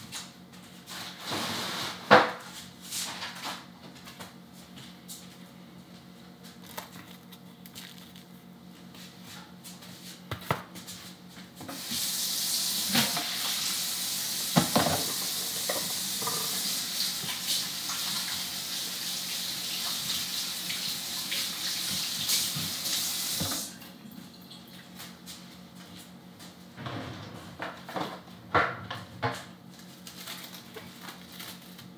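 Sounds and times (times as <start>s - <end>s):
faucet running into sink: 11.9s - 23.7s.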